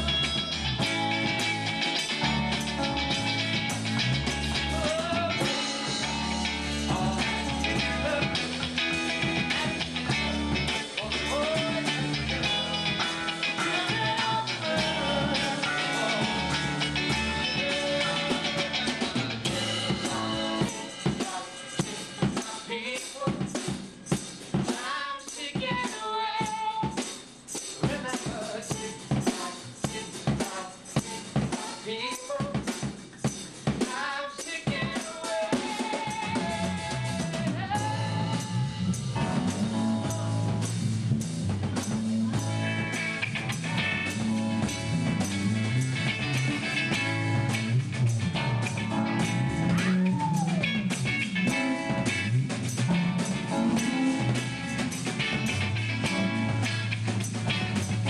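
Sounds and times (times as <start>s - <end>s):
person singing: 0.0s - 1.0s, 4.5s - 23.4s, 27.8s - 32.6s, 33.8s - 40.4s
rock band playing: 0.0s - 22.4s, 35.6s - 58.0s
sharp drum hits and rimshots: 0.0s - 31.9s, 32.5s - 58.0s.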